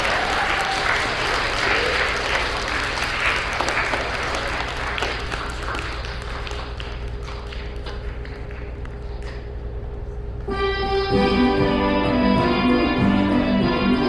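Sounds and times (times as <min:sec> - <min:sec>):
audience applause: 0:00.0 - 0:09.2.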